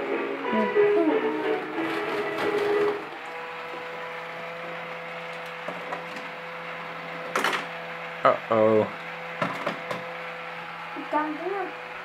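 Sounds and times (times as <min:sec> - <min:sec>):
plastic balls rustling: 0:01.6 - 0:03.9.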